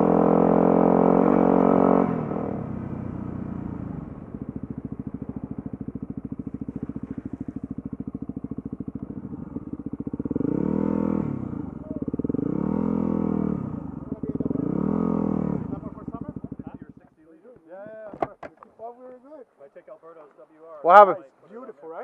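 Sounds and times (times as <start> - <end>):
motorcycle engine running: 0.0 - 17.2.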